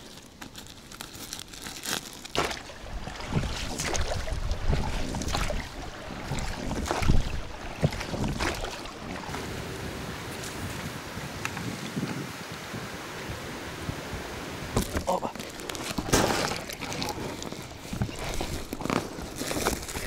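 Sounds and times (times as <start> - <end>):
oars splashing: 0.4 - 10.9, 14.6 - 20.0
wind rumbling on microphone: 2.8 - 20.0
sack rustling: 14.8 - 20.0.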